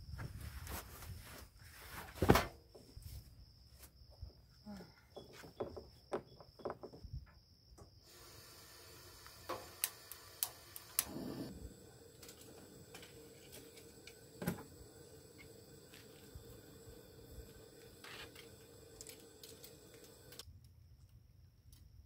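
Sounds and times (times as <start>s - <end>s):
faint steady hiss: 7.8s - 22.0s.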